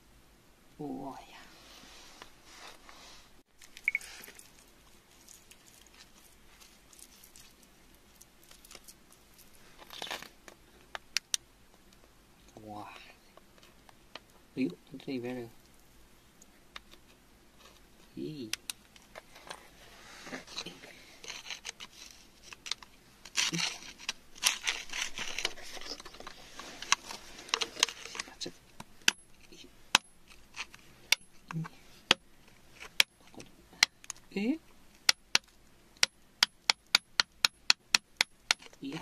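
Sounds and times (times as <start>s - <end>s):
scrape in soil: 1.5s - 4.6s, 19.7s - 22.4s
tool scraping wet gravelly mud: 23.3s - 28.3s.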